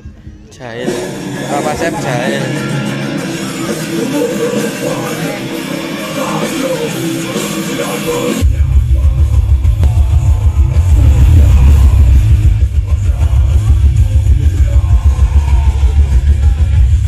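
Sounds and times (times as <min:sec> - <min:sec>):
loud rock music over pa system: 0:00.0 - 0:17.0
deep heavy bass: 0:08.4 - 0:17.0.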